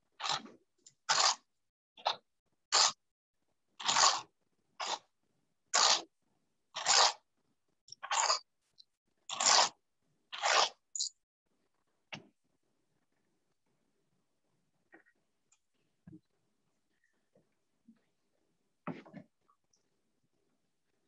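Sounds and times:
pencil sharpener scraping: 6.8s - 7.2s, 8.0s - 8.5s, 9.3s - 9.8s, 10.4s - 11.1s.

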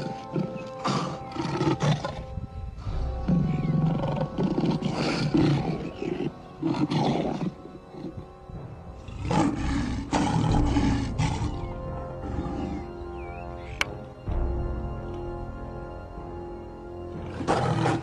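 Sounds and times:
lion growling and snarling: 0.0s - 8.3s, 9.0s - 12.9s, 17.2s - 18.0s
background music held notes: 0.0s - 18.0s.

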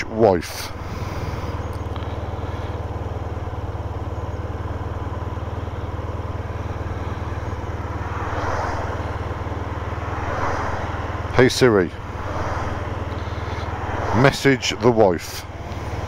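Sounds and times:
motorcycle engine idling: 0.0s - 10.2s, 10.8s - 16.0s
vehicle passing: 0.5s - 16.0s.

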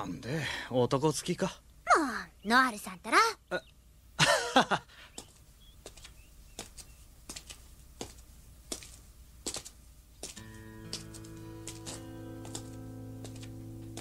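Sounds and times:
footsteps walking: 5.2s - 14.0s
held music chord: 10.4s - 14.0s.

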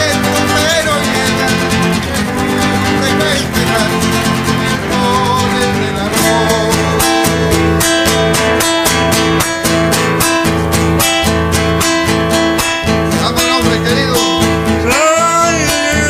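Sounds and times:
acoustic guitar strumming: 0.0s - 16.0s
man singing: 0.0s - 16.0s.

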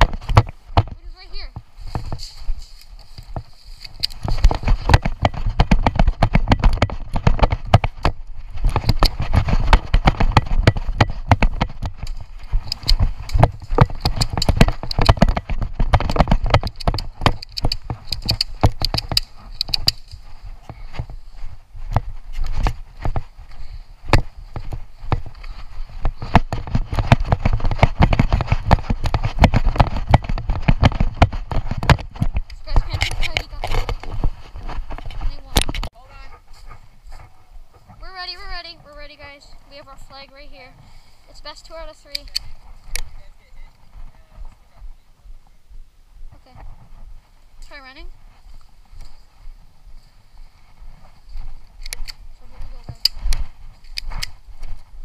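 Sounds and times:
running footsteps on dry leaves: 0.0s - 39.8s
camera jolting thuds and knocks: 4.2s - 19.0s.

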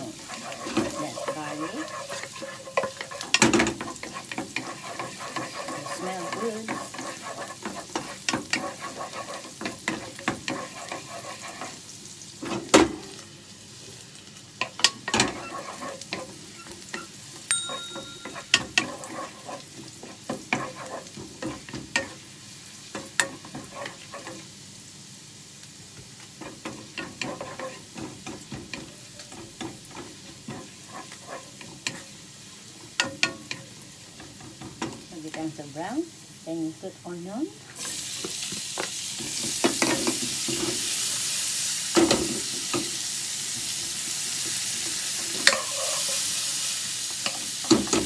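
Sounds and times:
wooden spatula scraping a pan: 0.0s - 12.6s, 14.6s - 17.0s, 18.2s - 22.3s, 22.9s - 24.5s, 26.3s - 32.2s, 37.8s - 41.0s, 43.5s - 48.0s
garlic sizzling in a frying pan: 0.0s - 48.0s
spatula tapping the pan: 17.5s - 19.0s.

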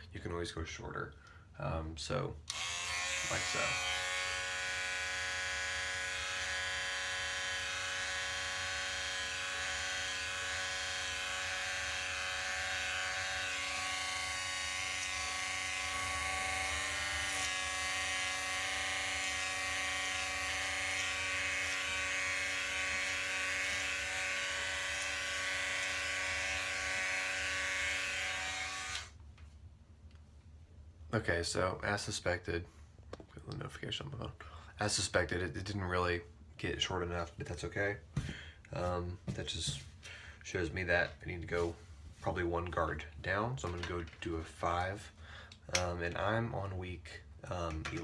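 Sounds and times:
electric beard trimmer buzzing: 2.5s - 29.2s.

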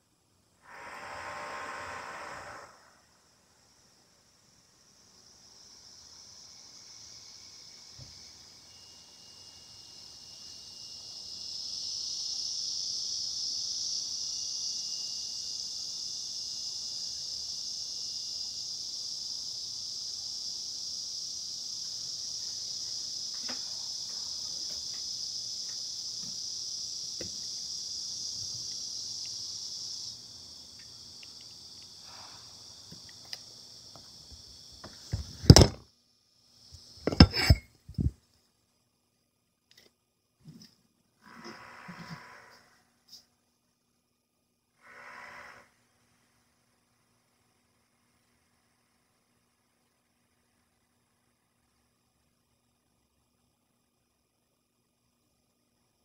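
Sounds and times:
steady high-pitched hiss: 0.0s - 56.0s
dishes clattering: 37.1s - 37.7s.

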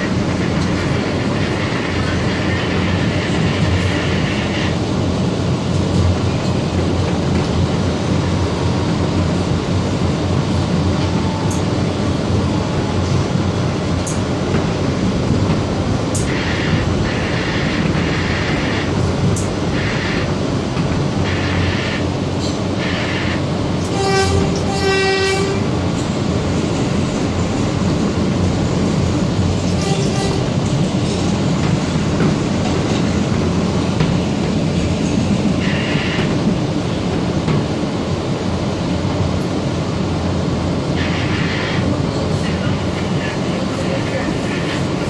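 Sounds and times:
train wheels rumbling on rail: 0.0s - 45.0s
train horn blasts: 23.8s - 25.7s, 29.8s - 30.6s.

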